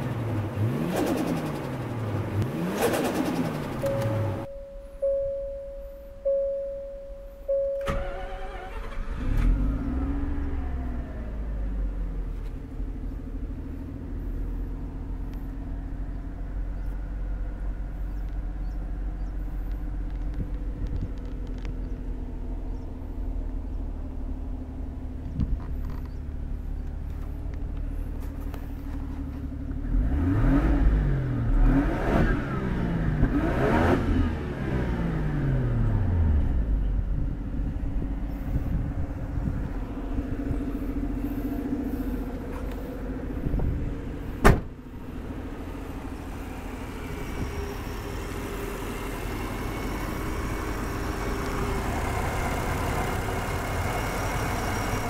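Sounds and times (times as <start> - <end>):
rotary engine idling and revving: 0.0 - 4.5, 7.9 - 55.0
warning chime tone: 3.8 - 8.4.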